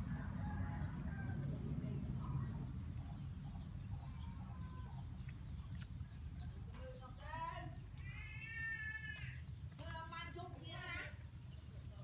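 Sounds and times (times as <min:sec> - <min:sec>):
low rumble: 0:00.0 - 0:07.2
chickens clucking: 0:00.0 - 0:08.1.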